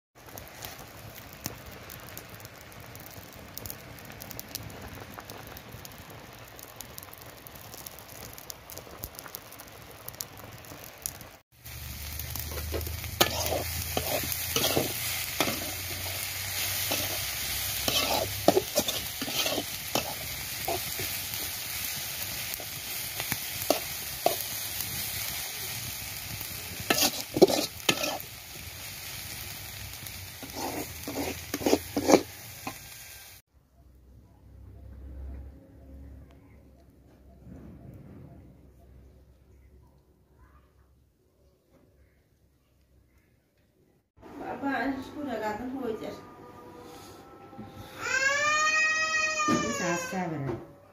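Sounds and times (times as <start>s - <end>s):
greens sizzling in a wok: 0.2s - 33.5s, 44.2s - 46.2s, 47.8s - 50.6s
spatula scraping a pan: 12.3s - 21.5s, 26.7s - 28.3s, 30.4s - 33.0s.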